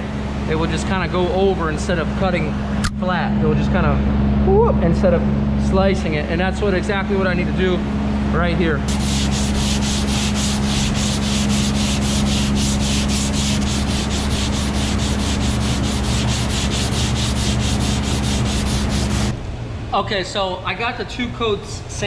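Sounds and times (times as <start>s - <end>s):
steady low hum: 0.0s - 22.0s
sandpaper scraping back and forth: 8.9s - 19.4s.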